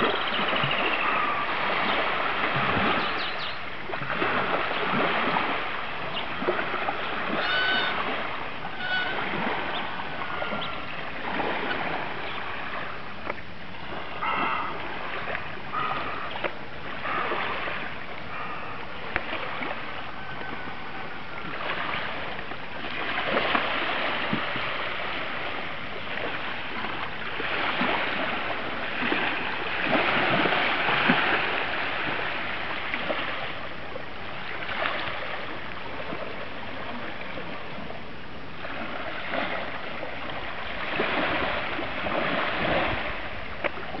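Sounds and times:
waves lapping on shore: 0.0s - 44.0s.

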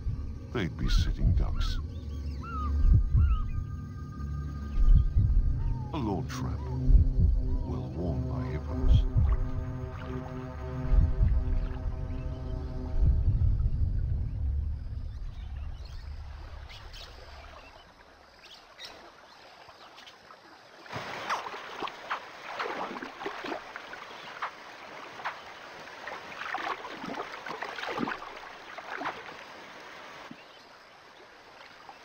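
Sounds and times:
small water splashes: 16.2s - 32.0s.

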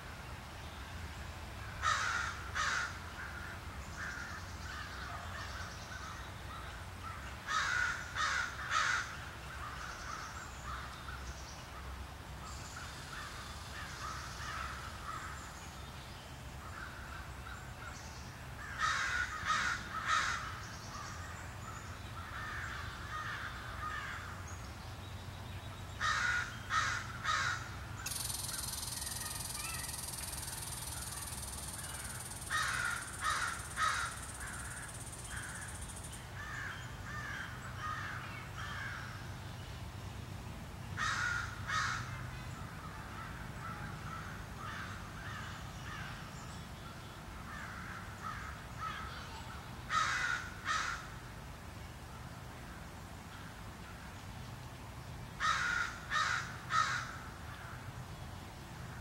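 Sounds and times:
steady high hiss: 0.0s - 41.7s
bird calling: 26.0s - 38.1s.

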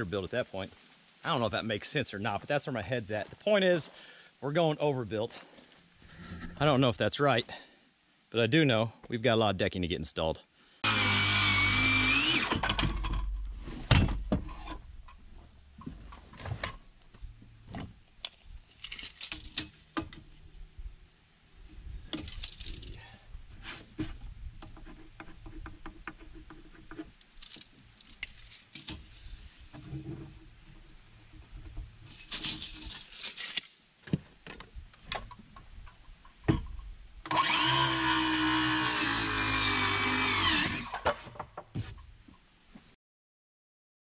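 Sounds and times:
power drill running: 10.8s - 12.6s, 37.3s - 41.0s.

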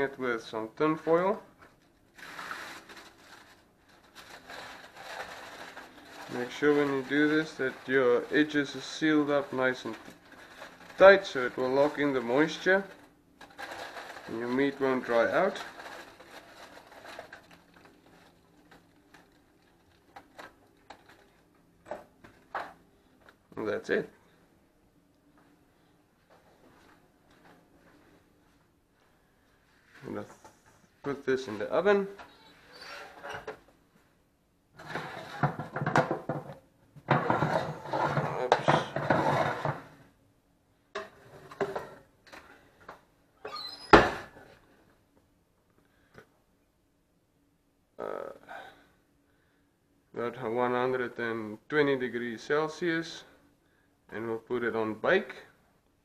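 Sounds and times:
aluminium foil crinkling: 1.8s - 21.6s
foil crackles: 2.1s - 21.5s.

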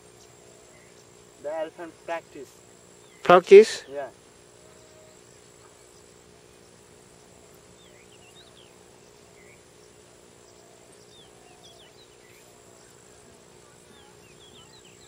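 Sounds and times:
steady insect drone: 0.0s - 15.0s
bird chirps: 4.8s - 15.0s.

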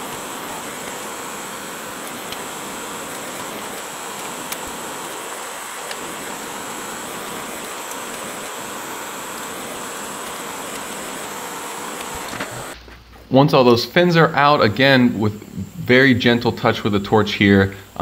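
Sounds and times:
propane torch hissing: 0.0s - 12.8s.

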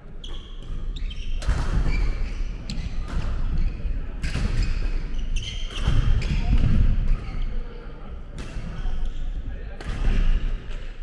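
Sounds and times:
shoes squeaking: 0.2s - 6.6s.

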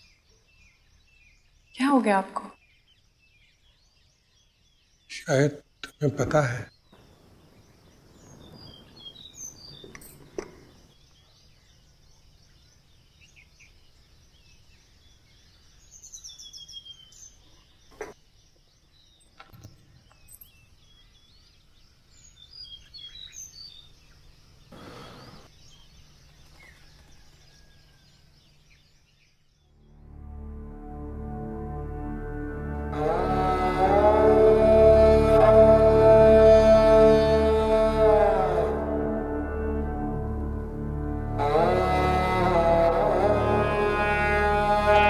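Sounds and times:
small birds chirping: 0.0s - 30.1s
soft music: 29.7s - 45.0s.

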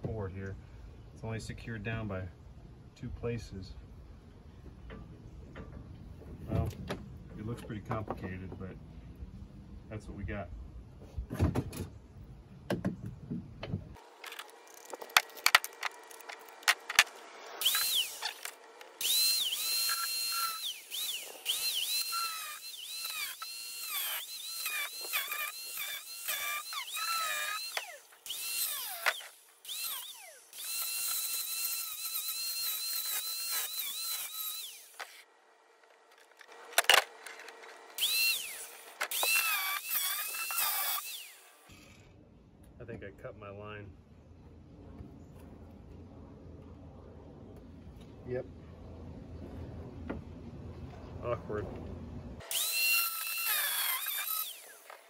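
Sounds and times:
angle grinder cutting: 14.0s - 35.3s, 36.1s - 42.1s, 52.4s - 55.0s.

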